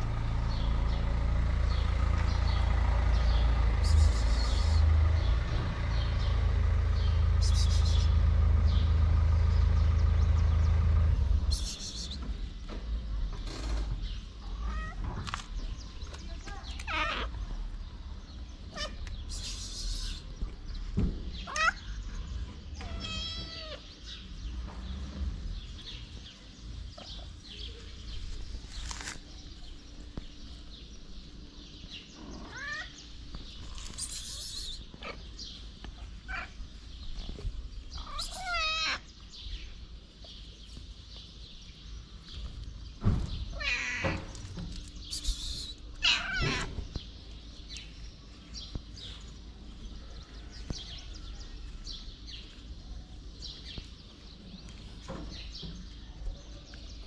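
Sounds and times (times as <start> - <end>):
steady low rumble: 0.0 - 23.4
cats meowing: 14.5 - 15.2, 16.8 - 17.4, 21.4 - 21.8, 22.8 - 23.9, 32.2 - 33.0, 36.0 - 36.8, 38.0 - 39.1, 43.5 - 44.4, 45.2 - 46.9.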